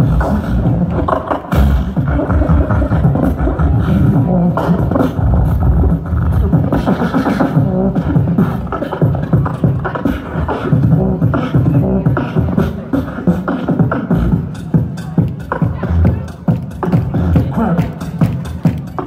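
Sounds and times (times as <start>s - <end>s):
beatboxing through speakers: 0.0s - 19.0s.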